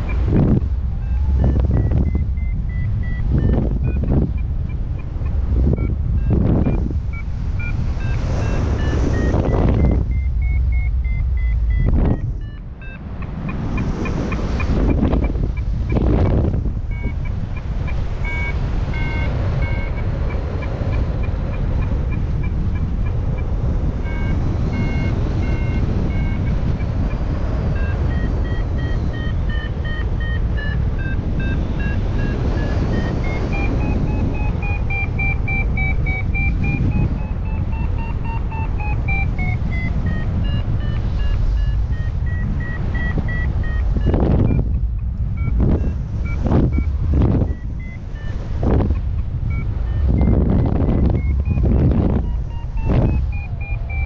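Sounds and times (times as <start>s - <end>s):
heavy wind rush on microphone: 0.0s - 54.0s
variometer beeping: 0.0s - 54.0s.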